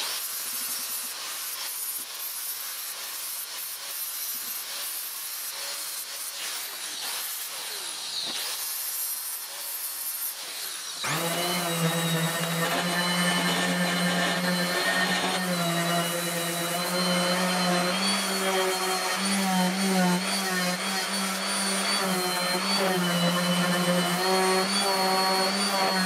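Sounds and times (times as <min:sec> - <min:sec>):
angle grinder grinding steel: 0:00.0 - 0:26.0
orbital sander humming: 0:11.0 - 0:26.0.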